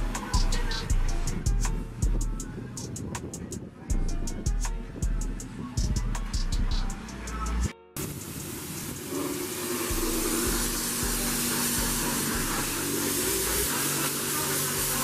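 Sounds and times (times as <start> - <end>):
high-pressure water spraying: 0.0 - 2.3, 8.0 - 15.0.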